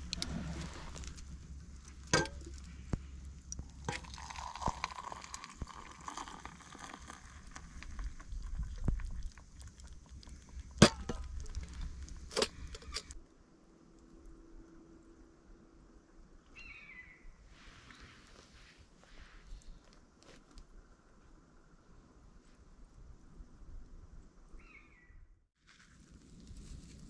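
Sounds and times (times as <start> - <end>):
steady low rumble: 0.0 - 4.0, 7.6 - 16.3.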